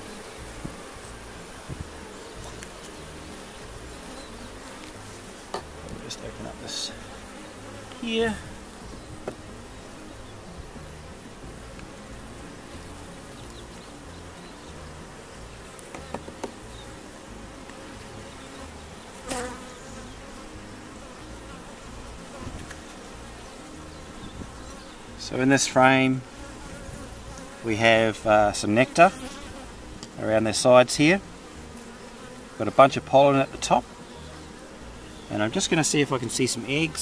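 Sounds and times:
honeybees buzzing: 0:00.0 - 0:37.0
loud bending bee buzz close by: 0:00.0 - 0:37.0
hive tool clicking on frames: 0:15.7 - 0:16.6.

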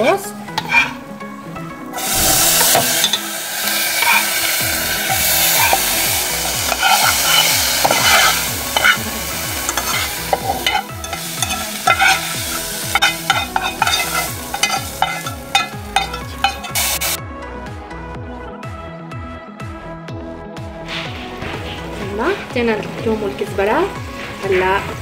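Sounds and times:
faint background music: 0:00.0 - 0:17.2, 0:17.8 - 0:25.0
hot oil sizzling: 0:00.4 - 0:17.2
metal spoon scraping pan: 0:00.6 - 0:01.0, 0:02.0 - 0:17.2.

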